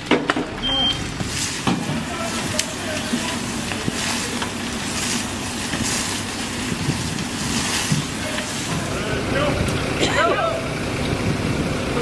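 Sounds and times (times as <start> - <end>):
fire engine rumbling: 0.0 - 12.0.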